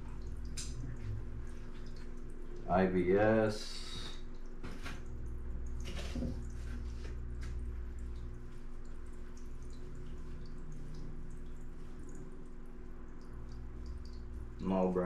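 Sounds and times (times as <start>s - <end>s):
steady low hum: 0.0s - 15.0s
water trickling and dripping: 0.0s - 15.0s.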